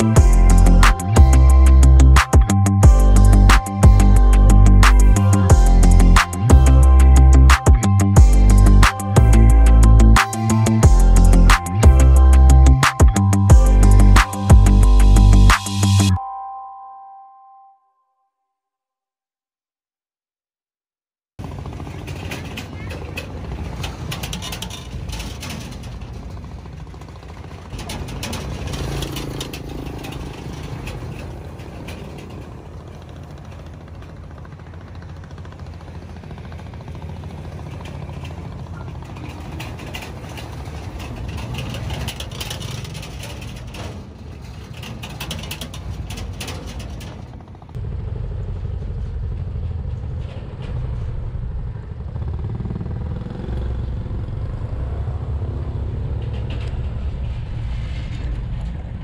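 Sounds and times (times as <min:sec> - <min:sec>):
steady low rumble: 0:00.0 - 0:16.1
motorbike engines: 0:00.0 - 0:16.2, 0:21.4 - 0:59.0
steel plates clattering: 0:27.7 - 0:33.0, 0:37.5 - 0:47.4.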